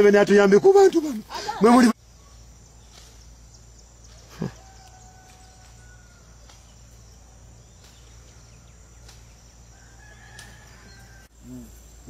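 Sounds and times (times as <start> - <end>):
faint outdoor background: 0.0 - 12.0
distant rooster crowing: 4.1 - 7.0, 8.2 - 11.7.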